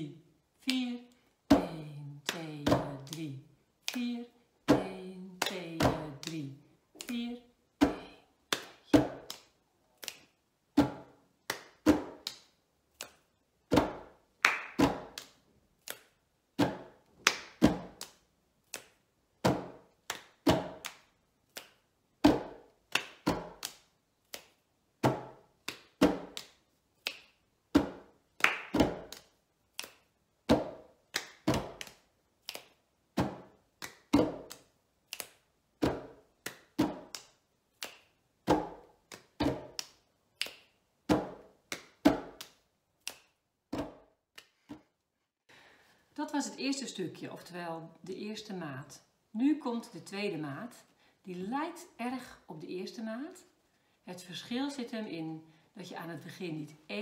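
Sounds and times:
hands clapping: 2.2s - 4.2s, 4.8s - 7.3s, 8.0s - 10.3s, 11.5s - 13.2s, 14.4s - 19.0s, 20.0s - 21.8s, 22.4s - 27.3s, 28.4s - 32.8s, 33.8s - 43.3s
hands slapping wooden tabletop: 16.6s - 44.9s.

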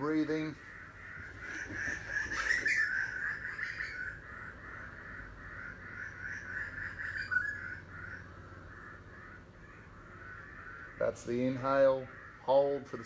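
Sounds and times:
harsh bird calls: 0.0s - 13.0s.

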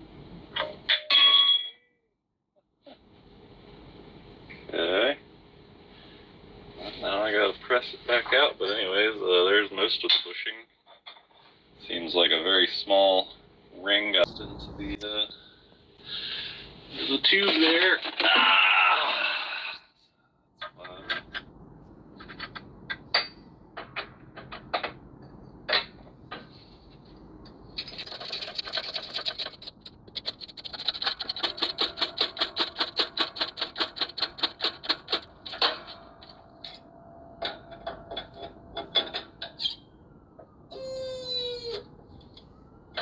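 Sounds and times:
metal clicks and knocks: 20.6s - 26.5s, 27.8s - 36.8s, 37.4s - 39.6s.

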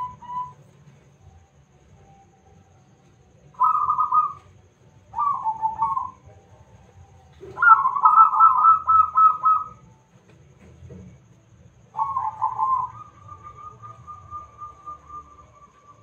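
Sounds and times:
dove cooing: 0.0s - 1.0s, 3.5s - 10.0s, 11.9s - 16.0s.

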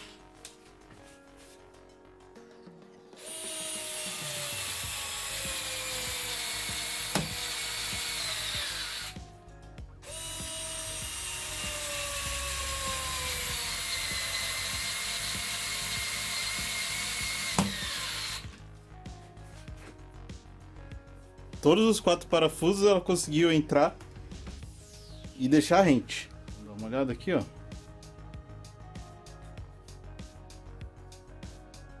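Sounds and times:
cordless screwdriver motor whine: 3.2s - 9.2s, 10.0s - 18.6s.

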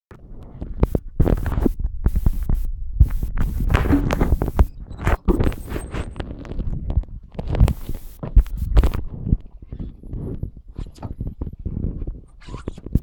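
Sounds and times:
low rumble: 0.2s - 9.6s.

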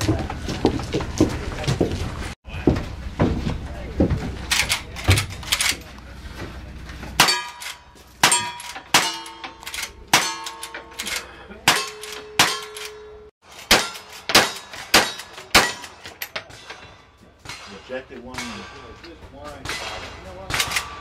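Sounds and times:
metallic rings of steel targets: 7.2s - 21.0s.

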